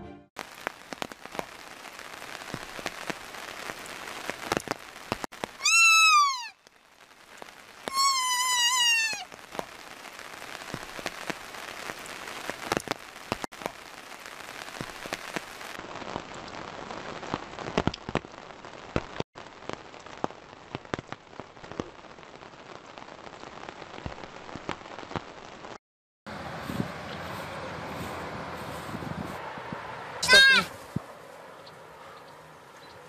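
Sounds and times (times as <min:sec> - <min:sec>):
rain pattering: 0:00.4 - 0:33.0
fawn bleating: 0:05.6 - 0:06.6, 0:07.9 - 0:09.2, 0:30.2 - 0:30.8.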